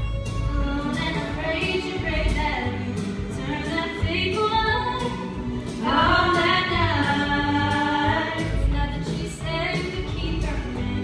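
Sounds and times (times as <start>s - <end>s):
women singing together: 5.8s - 11.0s.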